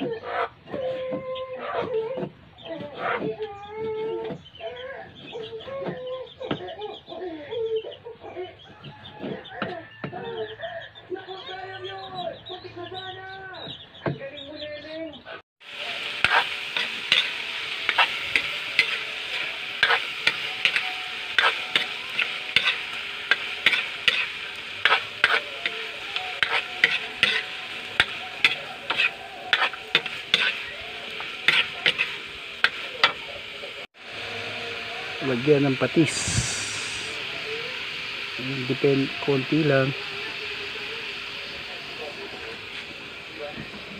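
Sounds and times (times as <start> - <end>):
pork sizzling in a wok: 8.6 - 10.7, 15.6 - 43.9
metal spatula scraping a wok: 16.1 - 33.2.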